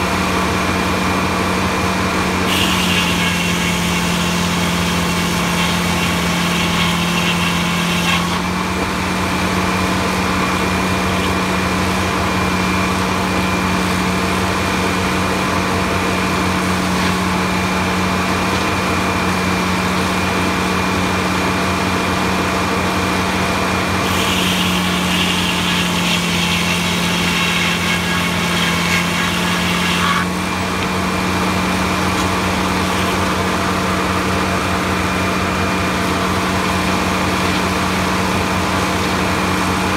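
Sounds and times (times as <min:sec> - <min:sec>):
sawmill machine hum: 0:00.0 - 0:39.9
saw blade cutting a log: 0:01.1 - 0:13.6, 0:23.8 - 0:39.9.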